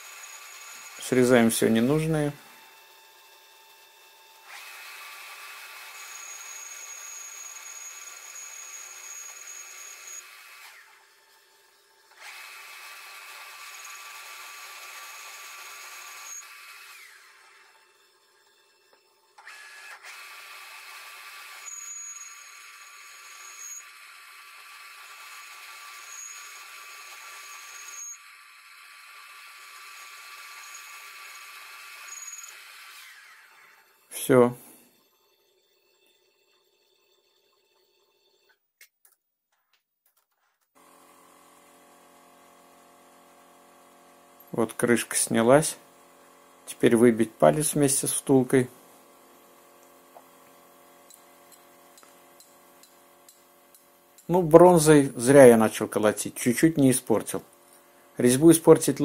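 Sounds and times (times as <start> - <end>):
power tool high whine: 0.0 - 38.2.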